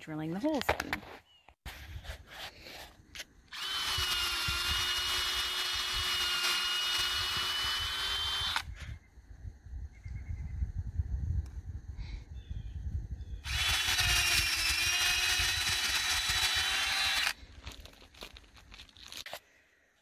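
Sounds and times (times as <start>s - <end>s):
cordless drill whining: 3.5s - 8.8s, 13.4s - 17.4s.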